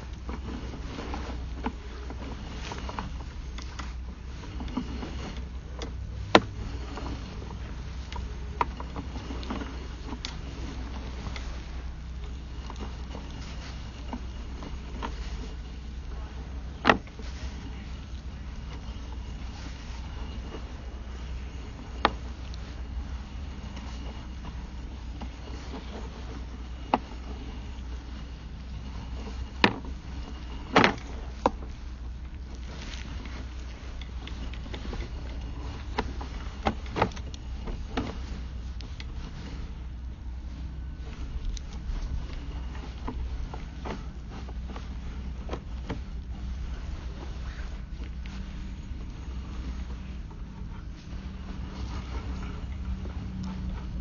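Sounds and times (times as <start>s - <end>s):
cable clicks and knocks: 0.0s - 39.6s
low hum: 0.0s - 54.0s
low steady rumble: 0.0s - 54.0s.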